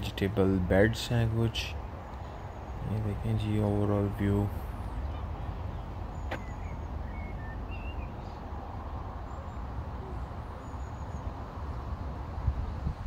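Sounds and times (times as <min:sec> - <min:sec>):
faint bird chirps: 0:05.8 - 0:08.4.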